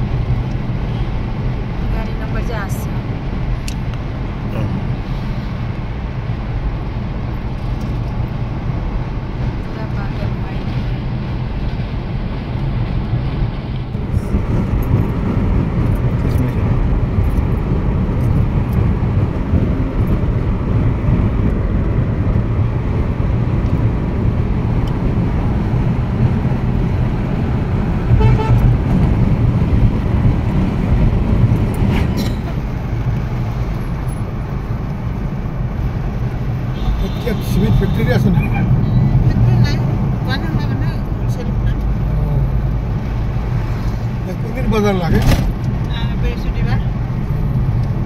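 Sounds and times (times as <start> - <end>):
road and engine rumble: 0.0 - 48.0
car horn toot: 28.1 - 28.7, 36.7 - 39.1.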